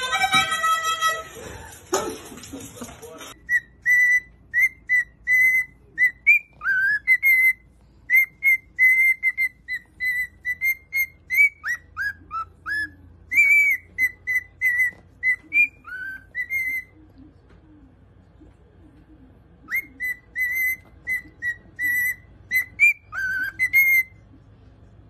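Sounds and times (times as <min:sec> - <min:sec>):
cockatiel whistling a tune: 0:03.4 - 0:17.0, 0:19.6 - 0:24.2.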